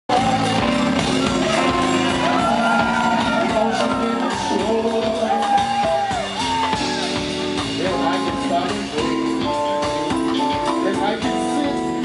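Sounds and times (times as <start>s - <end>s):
voices shouting and singing: 0.1s - 9.2s
jazz band playing: 0.1s - 12.0s.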